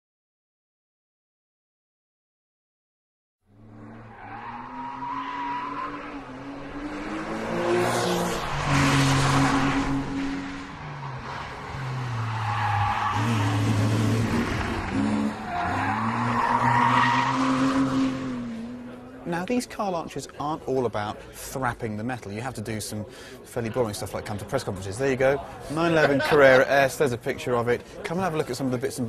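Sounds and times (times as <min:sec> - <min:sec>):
car engine revving: 0:03.5 - 0:19.2
tyres squealing and skidding: 0:03.8 - 0:06.8, 0:08.4 - 0:18.4.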